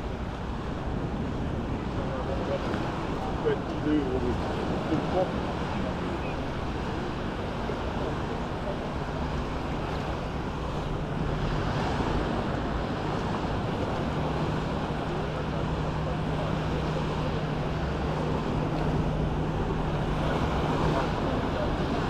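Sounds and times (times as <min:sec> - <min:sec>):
waves washing onto beach: 0:00.0 - 0:22.0.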